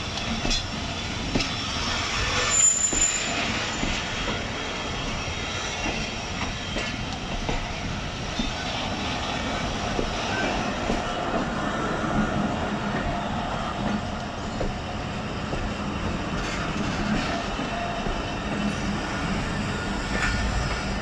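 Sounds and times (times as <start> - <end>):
train wheels on rails: 0.0 - 21.0
high squeal: 1.8 - 4.1.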